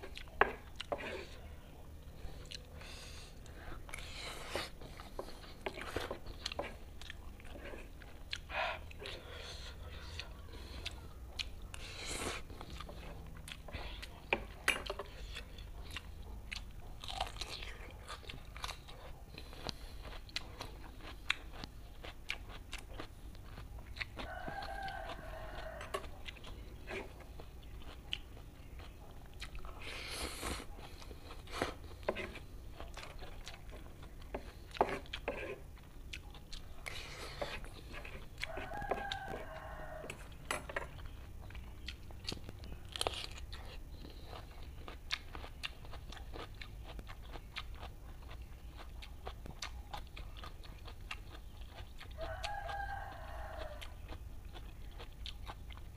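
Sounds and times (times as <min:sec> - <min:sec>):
chewing and slurping noodles: 0:00.0 - 0:55.9
crunching cucumber: 0:15.4 - 0:55.9.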